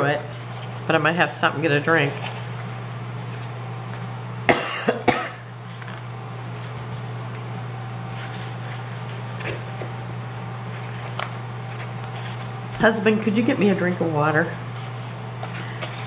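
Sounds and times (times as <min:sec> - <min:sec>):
steady low hum: 0:00.0 - 0:16.0
woman coughing: 0:04.5 - 0:05.5.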